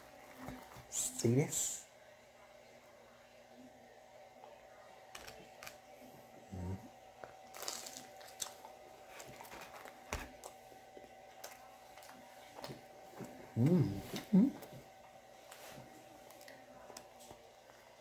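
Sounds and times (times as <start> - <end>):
man chewing food: 7.2 - 14.8
soft crunches and mouth clicks: 7.5 - 10.6.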